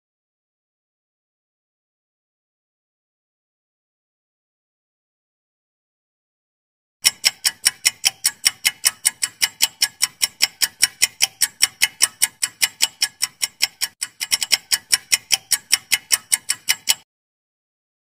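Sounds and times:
fast clock-like ticking: 0:07.0 - 0:17.1.

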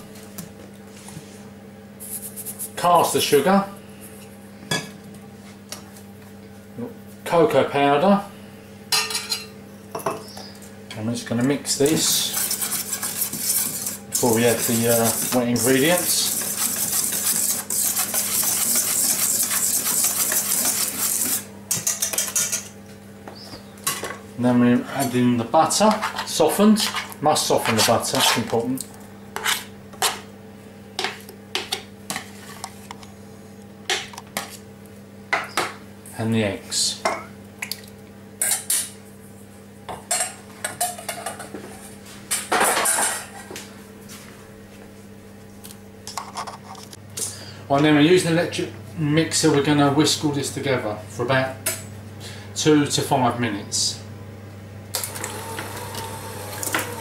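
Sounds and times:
steady low hum: 0:00.0 - 0:55.1
whisk scraping dry ingredients: 0:11.8 - 0:22.6, 0:25.7 - 0:28.5.

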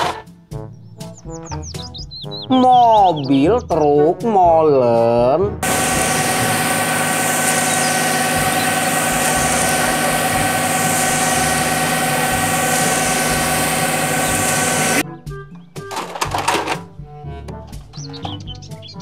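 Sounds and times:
diesel truck engine running: 0:05.6 - 0:15.0
steady whine: 0:05.6 - 0:15.0.

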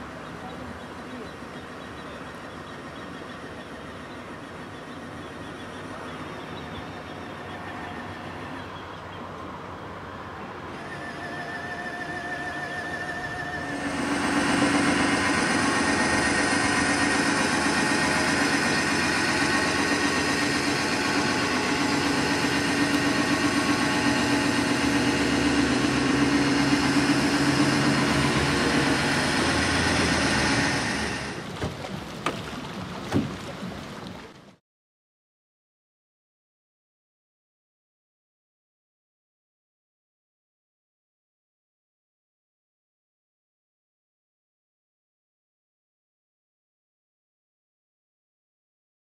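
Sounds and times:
cordless drill hum and whine: 0:10.7 - 0:31.4.

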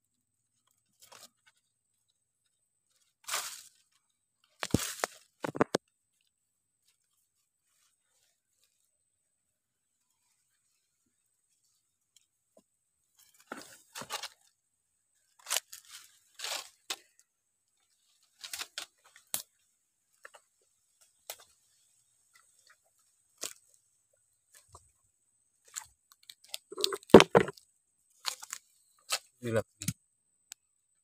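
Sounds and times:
dry leaves and twigs crunching: 0:00.5 - 0:09.0, 0:13.0 - 0:29.4
thumps: 0:26.7 - 0:27.5.

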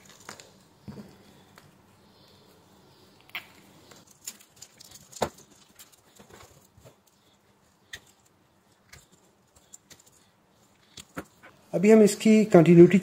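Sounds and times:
wire bundle rustling: 0:00.0 - 0:01.5, 0:03.7 - 0:11.4.

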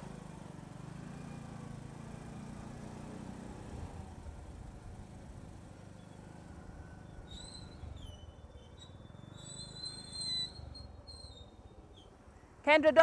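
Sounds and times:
motorcycle engine and road rumble: 0:00.0 - 0:13.0
high whistling squeals: 0:07.0 - 0:12.1.

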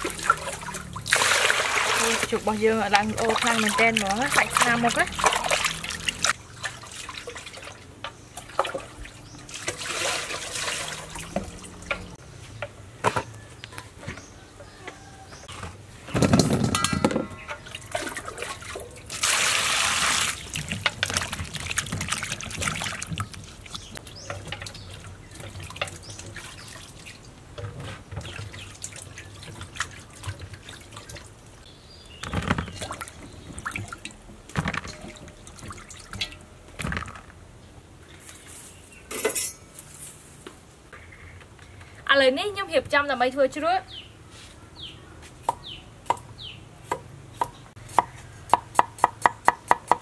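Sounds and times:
water splashing and pouring: 0:00.0 - 0:12.2, 0:17.6 - 0:27.4, 0:28.1 - 0:31.6, 0:32.2 - 0:37.3.

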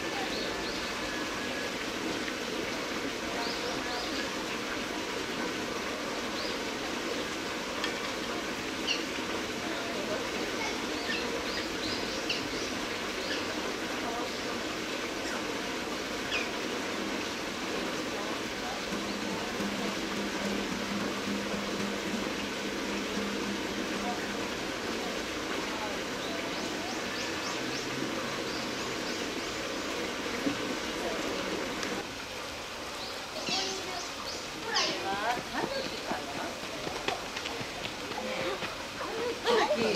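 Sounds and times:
murmur of distant voices: 0:00.0 - 0:39.9
small birds chirping faintly: 0:05.9 - 0:32.0.

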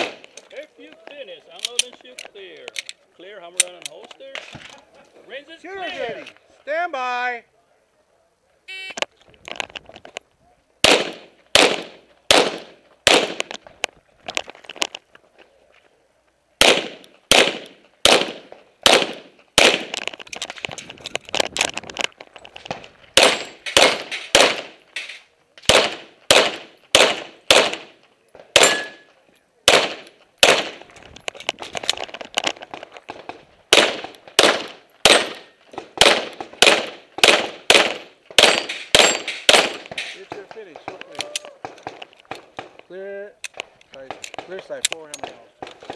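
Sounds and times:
rapid pistol fire: 0:10.8 - 0:13.5, 0:16.6 - 0:20.0, 0:23.2 - 0:24.8, 0:25.7 - 0:28.8, 0:29.7 - 0:30.8, 0:33.1 - 0:40.0.

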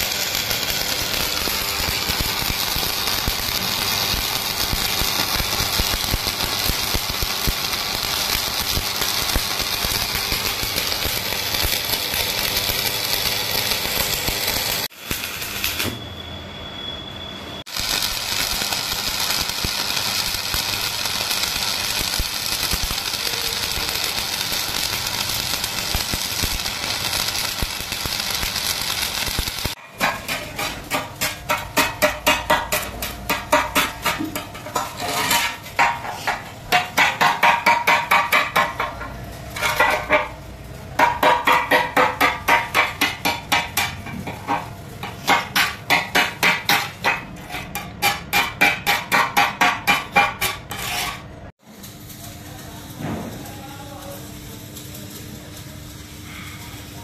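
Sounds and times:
chipping hammer tapping metal: 0:00.0 - 0:16.0, 0:17.7 - 0:40.4, 0:41.0 - 0:51.0
welding arc crackling and hissing: 0:00.0 - 0:16.0, 0:17.7 - 0:57.0.

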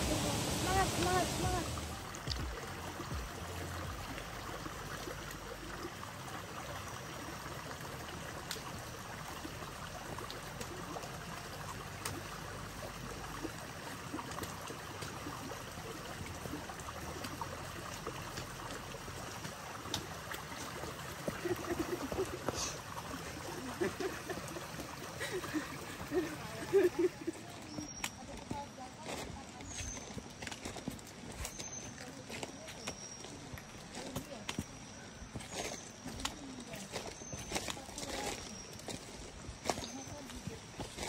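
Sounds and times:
stream of water flowing: 0:00.0 - 0:41.0.

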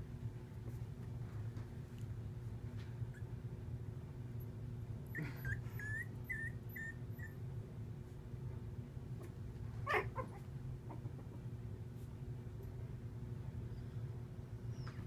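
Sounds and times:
puppy whimpering: 0:03.1 - 0:03.4, 0:05.0 - 0:07.5, 0:09.8 - 0:11.4
puppy yelping: 0:03.1 - 0:03.4, 0:05.1 - 0:07.4, 0:09.8 - 0:11.4.

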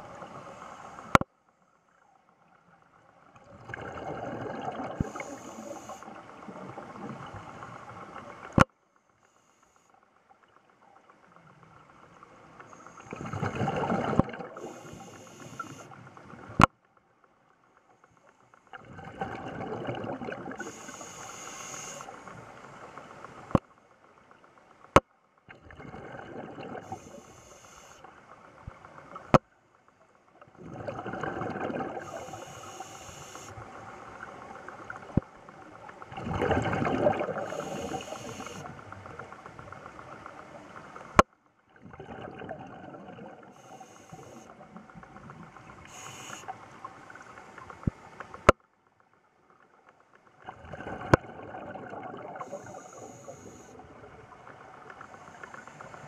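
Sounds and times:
bubbles gurgling underwater: 0:03.4 - 0:05.3, 0:13.1 - 0:14.8, 0:18.8 - 0:20.7, 0:25.6 - 0:26.9, 0:30.5 - 0:32.4, 0:36.0 - 0:39.2, 0:41.8 - 0:43.5, 0:50.4 - 0:53.0.

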